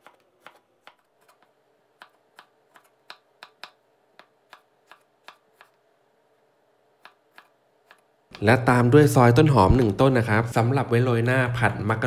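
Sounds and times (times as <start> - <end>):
knife chopping on cutting board: 0.0 - 5.8, 7.0 - 8.0.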